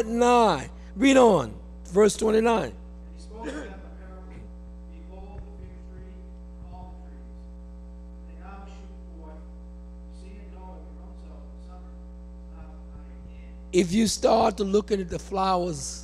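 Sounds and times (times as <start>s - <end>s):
electrical mains hum: 0.0s - 16.0s
faint voice reading aloud: 3.2s - 7.3s.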